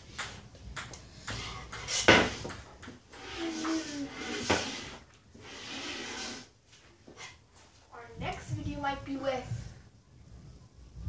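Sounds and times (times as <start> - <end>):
ping pong ball clicks: 0.1 - 3.5.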